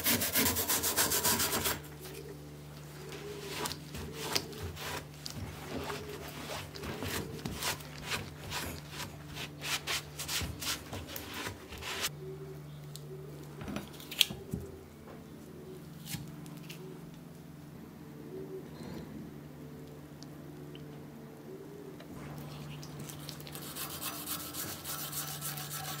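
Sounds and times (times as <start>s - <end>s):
hand sanding strokes: 0.0s - 1.8s, 3.4s - 12.1s, 23.4s - 26.0s.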